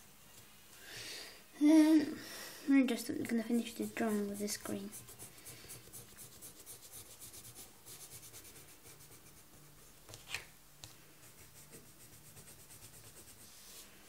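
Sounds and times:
pencil shading on paper: 3.4s - 9.8s, 11.2s - 13.6s.

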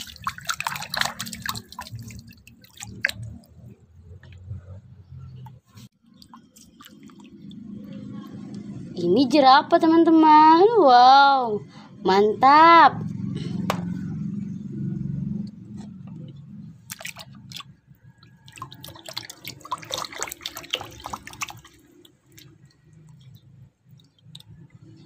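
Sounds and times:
water sloshing in basin: 0.0s - 4.8s, 5.7s - 9.0s, 15.8s - 25.0s.

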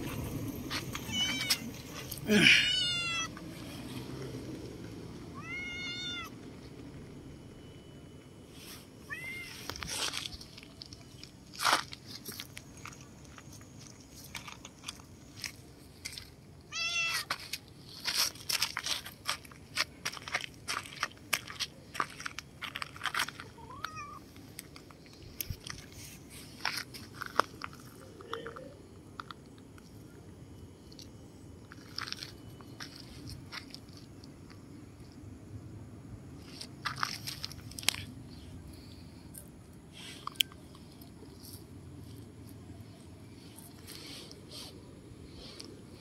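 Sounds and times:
cat meowing: 1.0s - 1.7s, 2.6s - 3.3s, 5.3s - 6.3s, 9.1s - 9.6s, 16.7s - 17.3s, 23.6s - 24.2s.

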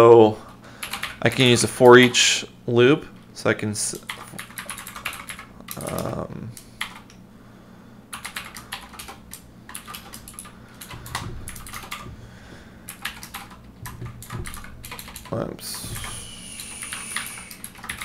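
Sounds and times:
typing on a computer keyboard: 0.8s - 2.2s, 4.0s - 6.2s, 6.8s - 7.2s, 8.1s - 12.1s, 12.9s - 18.0s.

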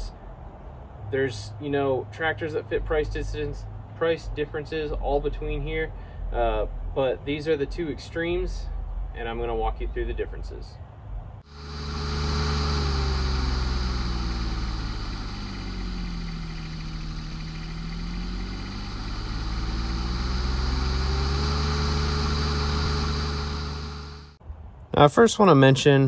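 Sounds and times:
engine running steadily: 11.4s - 24.4s.

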